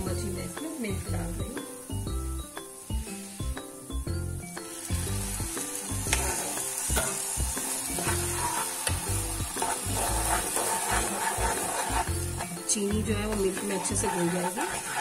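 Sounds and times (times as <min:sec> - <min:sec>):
background music with steady beat: 0:00.0 - 0:15.0
milk sizzling in a hot pan: 0:00.0 - 0:15.0
spoon stirring and scraping pan: 0:06.0 - 0:15.0.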